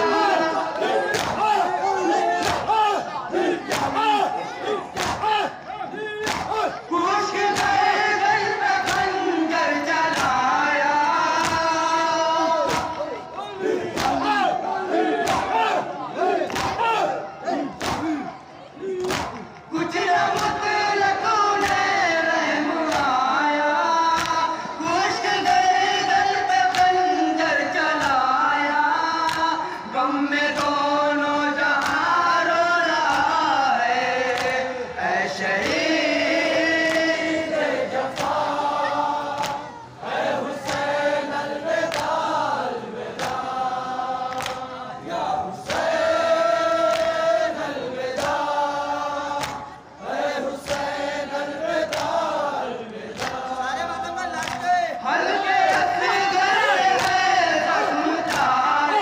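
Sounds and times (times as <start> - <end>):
men chanting in chorus: 0.0 - 59.0
hands slapping chests: 0.7 - 1.5, 2.4 - 2.8, 3.6 - 4.0, 4.9 - 6.7, 8.8 - 9.1, 10.1 - 10.4, 11.3 - 11.7, 12.6 - 13.0, 13.9 - 14.3, 15.2 - 15.6, 16.4 - 16.8, 17.6 - 18.2, 19.0 - 19.7, 20.3 - 20.6, 21.6 - 21.9, 22.9 - 23.2, 24.1 - 24.4, 28.0 - 28.2, 29.2 - 29.5, 30.5 - 30.8, 31.8 - 32.1, 33.0 - 33.3, 34.3 - 34.6, 36.8 - 37.1, 38.1 - 38.5, 39.3 - 39.7, 40.6 - 40.9, 41.8 - 42.2, 43.1 - 43.5, 44.3 - 44.7, 46.8 - 47.2, 48.1 - 49.8, 50.6 - 51.0, 51.8 - 52.4, 53.1 - 53.6, 54.4 - 54.7, 56.9 - 57.3, 58.2 - 58.6.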